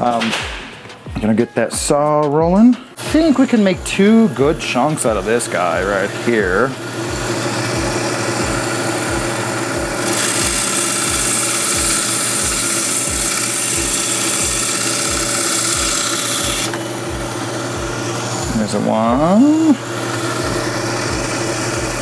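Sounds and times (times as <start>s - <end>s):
band saw running: 2.9s - 22.0s
saw blade cutting coral with hiss: 10.0s - 16.8s.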